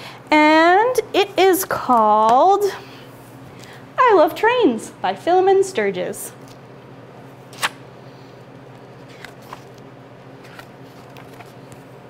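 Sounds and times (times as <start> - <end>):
low room hum: 0.0 - 12.0
faint page rustles: 9.0 - 9.8, 10.4 - 12.0.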